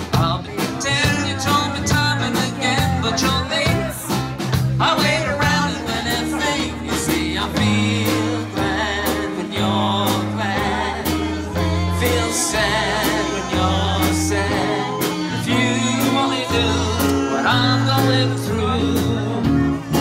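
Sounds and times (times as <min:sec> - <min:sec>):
person singing: 0:00.0 - 0:04.2, 0:04.8 - 0:20.0
bass line: 0:00.0 - 0:20.0
steady drum beat: 0:00.0 - 0:20.0
saxophone: 0:08.1 - 0:20.0.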